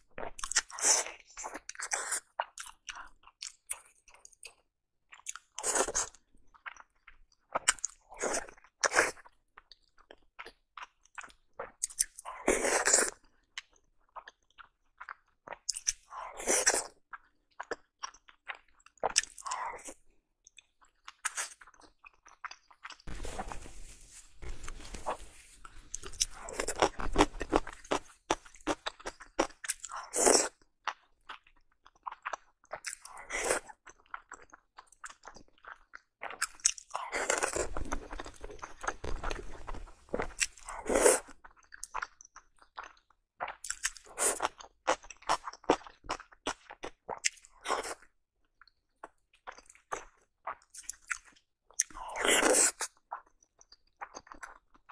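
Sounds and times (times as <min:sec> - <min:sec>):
wet chewing and biting: 0:24.4 - 0:48.1, 0:49.0 - 0:54.9.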